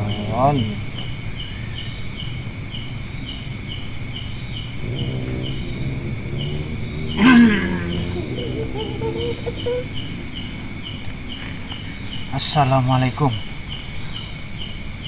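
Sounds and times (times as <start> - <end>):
crickets chirping: 0.0 - 15.0
person's voice: 7.2 - 9.9
person crying out: 7.2 - 10.0.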